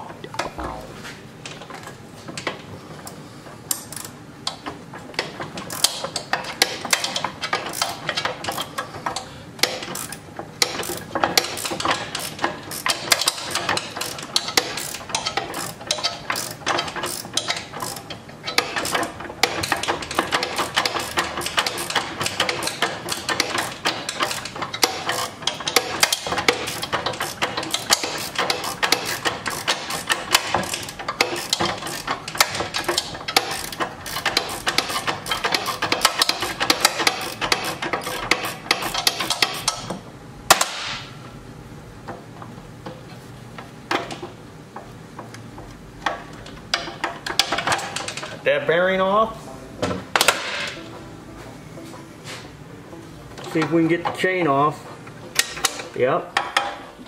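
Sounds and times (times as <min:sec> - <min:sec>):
wrench clicking on metal: 0:03.7 - 0:04.6, 0:05.2 - 0:39.9.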